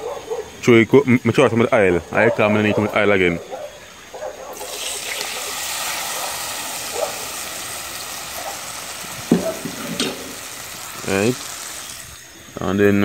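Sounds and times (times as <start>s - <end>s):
liquid sizzling in hot oil: 4.6s - 12.5s.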